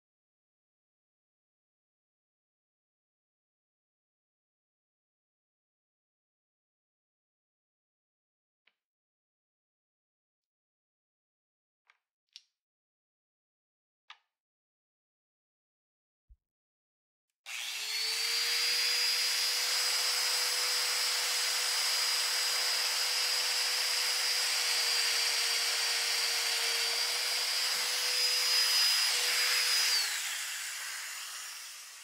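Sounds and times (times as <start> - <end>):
motor spinning down: 17.5 - 32.0
power joiner whining: 17.5 - 32.0.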